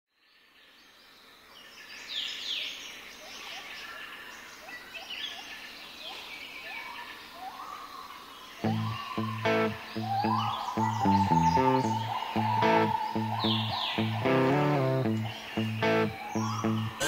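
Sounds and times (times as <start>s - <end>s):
chorus of birds chirping: 0.3s - 17.0s
low short rising bird call: 8.6s - 17.0s.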